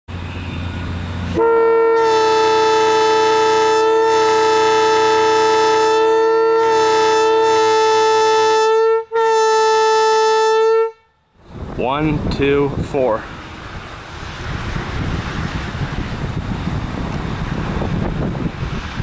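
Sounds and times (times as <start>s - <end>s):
locomotive air horn: 0.6s - 11.3s.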